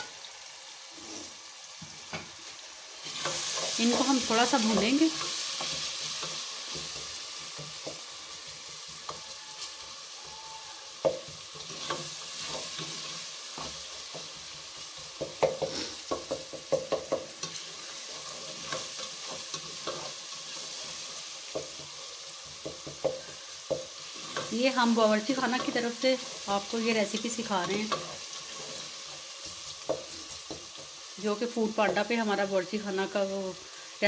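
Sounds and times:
spices sizzling in oil: 0.0s - 34.0s
spoon scraping and tapping pot: 11.0s - 20.6s, 21.5s - 24.6s, 27.2s - 31.0s.

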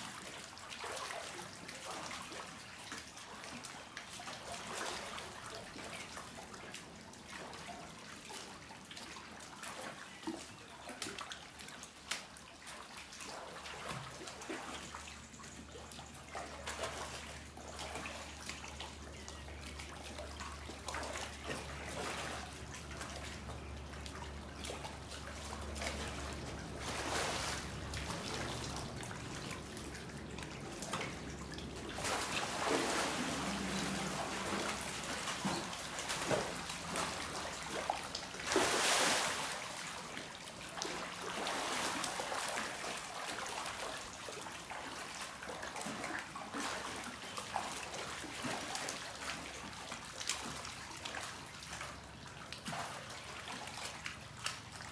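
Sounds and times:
water splashing: 0.0s - 54.9s
low steady hum: 12.6s - 49.9s.

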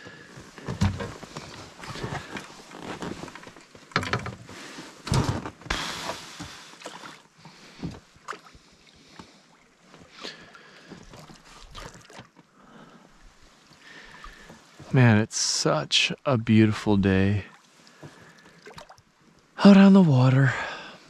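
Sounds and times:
oar blades splashing water: 5.7s - 12.5s, 13.3s - 14.9s, 17.5s - 19.0s.

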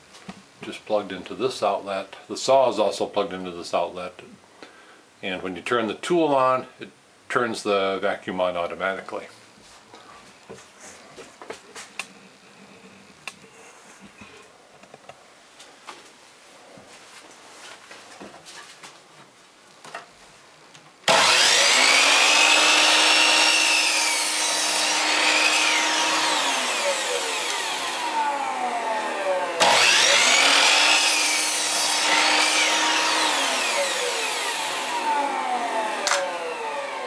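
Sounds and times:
chop saw cutting wood: 21.1s - 37.0s
shop vacuum running: 21.1s - 37.0s.

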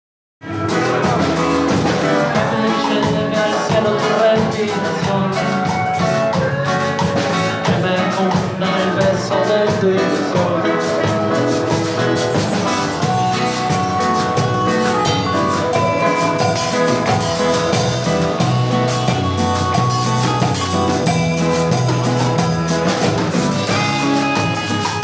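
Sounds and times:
bass guitar: 0.4s - 25.0s
drum kit: 0.4s - 25.0s
guitars: 0.4s - 25.0s
saxophone: 11.0s - 22.7s.

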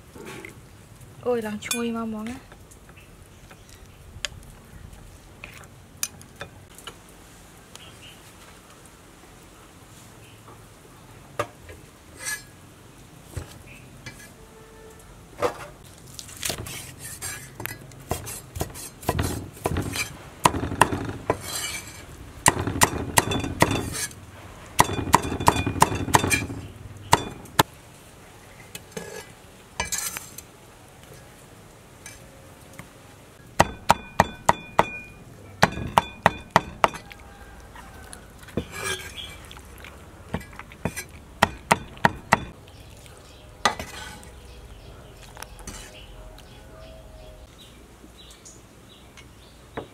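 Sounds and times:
cleaver chopping on wooden block: 33.6s - 37.1s, 40.9s - 42.6s.

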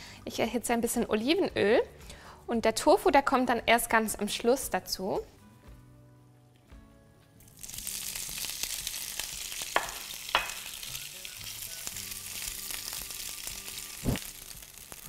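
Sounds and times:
tofu sizzling in oil: 7.5s - 15.0s.

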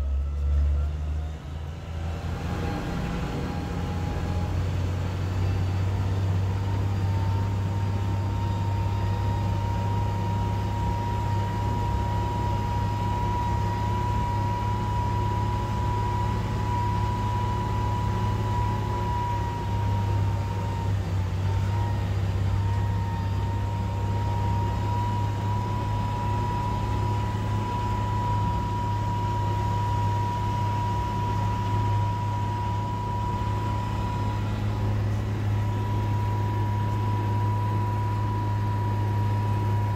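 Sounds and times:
tractor diesel engine hum: 0.0s - 39.9s
high whine: 24.1s - 39.9s.

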